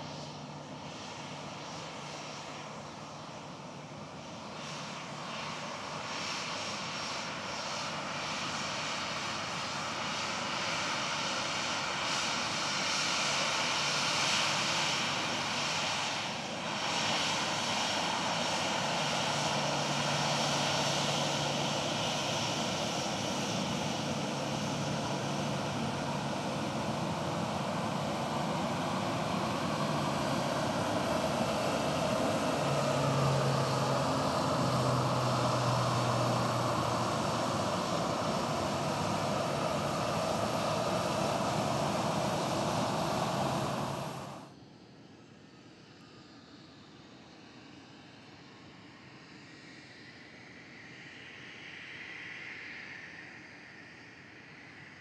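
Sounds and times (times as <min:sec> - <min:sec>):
jet engines of arriving plane: 0:00.0 - 0:55.0
low hum: 0:24.5 - 0:44.5.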